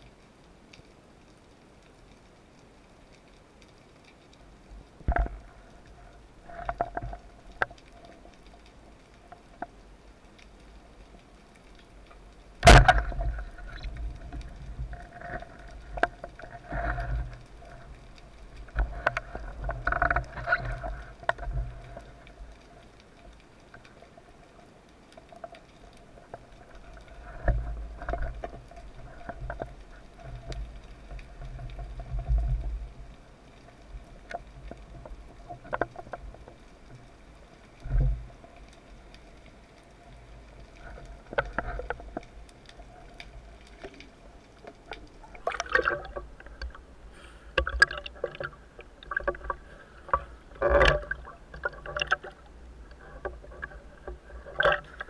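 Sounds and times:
underwater knocks and scrapes: 4.8s - 55.0s
speargun firing underwater: 12.6s - 13.2s.

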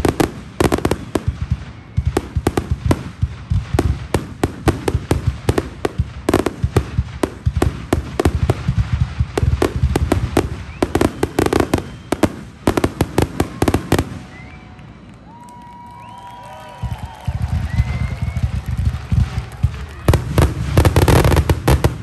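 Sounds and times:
fireworks crackling and banging: 0.0s - 22.0s
gliding whistle-like tones: 10.5s - 12.5s, 13.5s - 18.6s.

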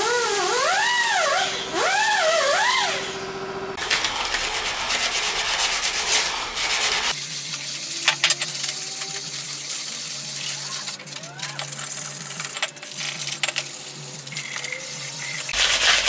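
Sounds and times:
metal scraping on abrasive disc: 3.8s - 16.0s.

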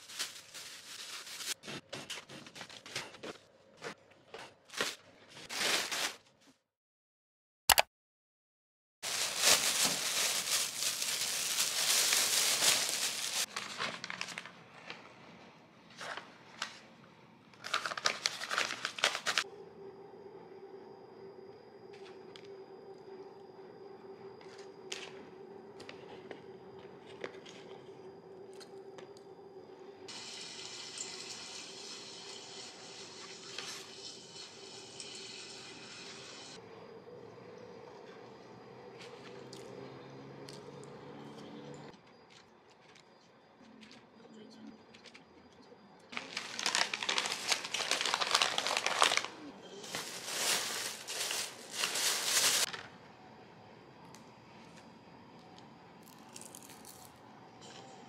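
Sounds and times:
packaging crinkling: 0.0s - 1.6s, 9.0s - 14.5s, 17.6s - 19.4s, 46.1s - 52.8s
steady hum: 19.4s - 38.9s.

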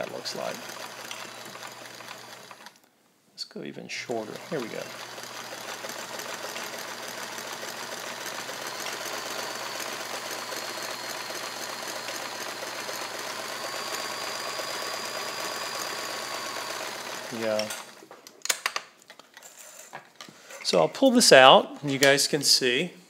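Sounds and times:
sewing machine motor whine: 0.0s - 2.8s, 4.1s - 18.0s
sewing machine needle clatter: 0.0s - 2.8s, 4.3s - 18.0s.

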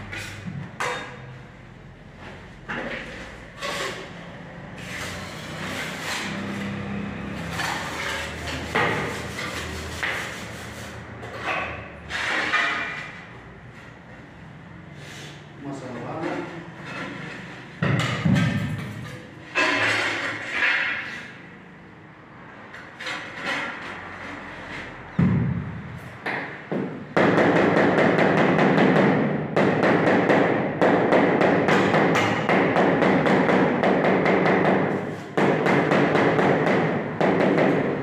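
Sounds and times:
knocks and thumps on tiles: 17.8s - 19.0s.

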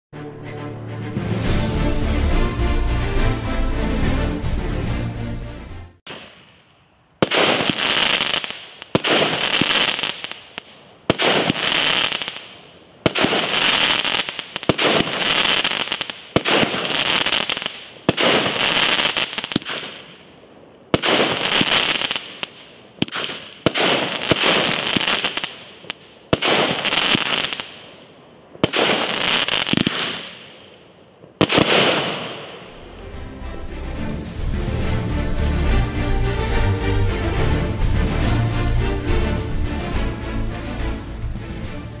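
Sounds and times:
firework shots banging: 6.1s - 20.3s, 20.9s - 28.0s, 28.6s - 32.8s
crackling hissing firework break: 7.2s - 28.0s, 28.6s - 32.8s.

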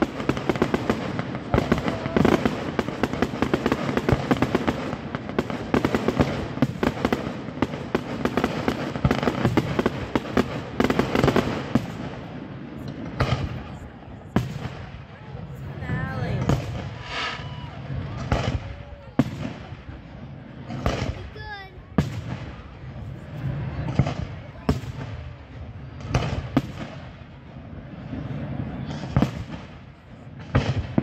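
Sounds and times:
fireworks bangs and crackles: 0.0s - 31.0s.

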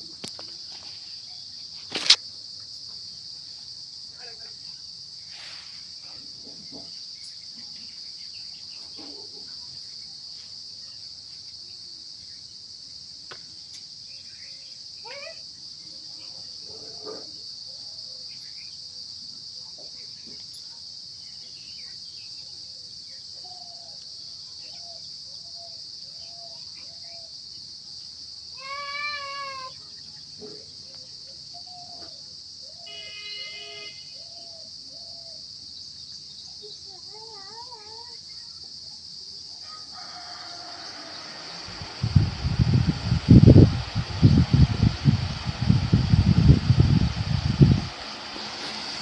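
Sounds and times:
faint chirps: 0.0s - 48.1s
crickets chorus: 0.0s - 49.0s.

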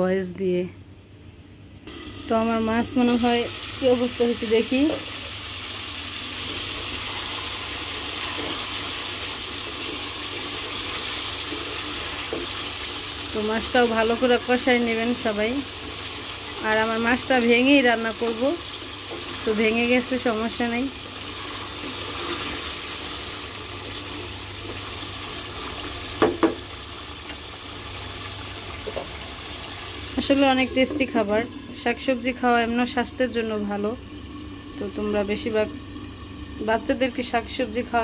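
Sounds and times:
fish sizzling in hot oil: 1.9s - 38.0s
spatula stirring: 6.4s - 13.0s
spatula knocking against pot: 26.2s - 26.6s.

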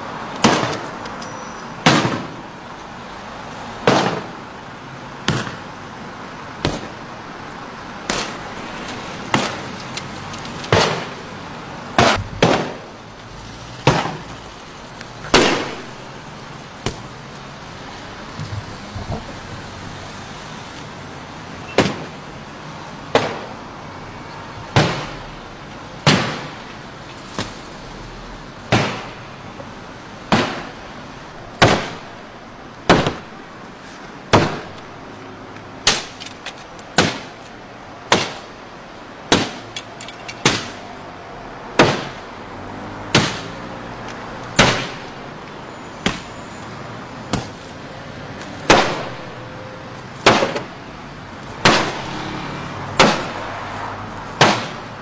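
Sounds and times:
street traffic: 0.0s - 55.0s
heavy tool striking car body: 12.0s - 12.9s, 43.1s - 43.5s, 54.4s - 54.9s.

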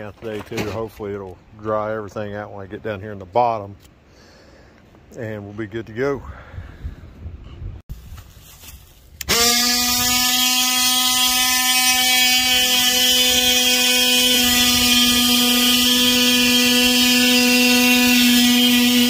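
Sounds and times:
oscillating multi-tool buzzing: 9.2s - 19.0s.

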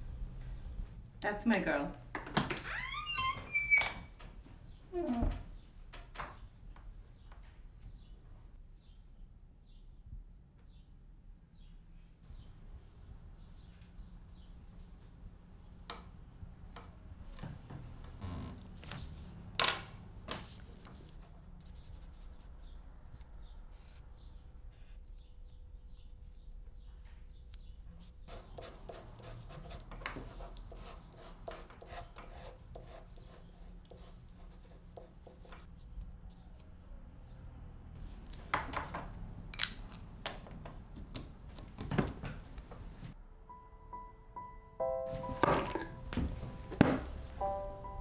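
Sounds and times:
pencil scratching on paper: 21.6s - 22.8s, 28.0s - 35.8s.

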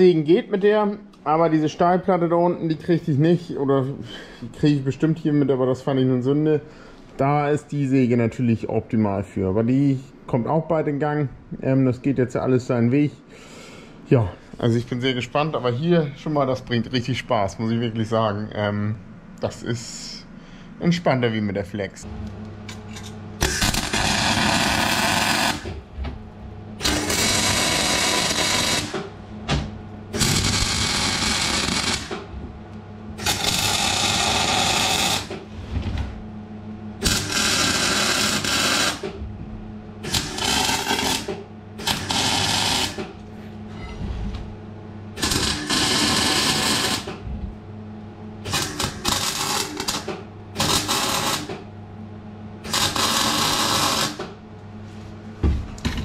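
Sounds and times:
steady low hum: 0.0s - 56.0s
welding arc crackling: 23.4s - 25.7s, 26.8s - 29.0s, 30.2s - 32.3s, 33.2s - 35.3s, 37.0s - 39.1s, 40.0s - 43.0s, 45.2s - 47.1s, 48.5s - 51.5s, 52.7s - 54.2s.

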